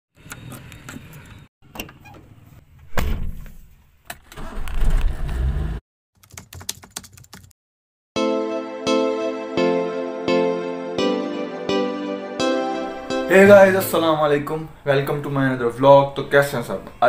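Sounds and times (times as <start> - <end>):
loud thud: 2.9 - 3.6.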